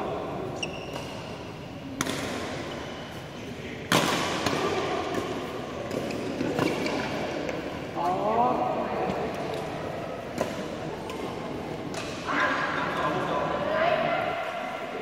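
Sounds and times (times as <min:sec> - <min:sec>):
racket striking shuttlecock: 0:02.0 - 0:02.5, 0:03.9 - 0:07.6.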